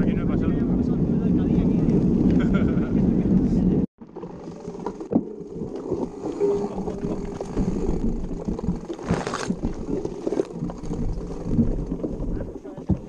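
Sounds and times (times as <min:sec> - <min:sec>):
bike rattling over bumps: 0:04.0 - 0:13.0
tyres rolling on gravel: 0:04.0 - 0:13.0.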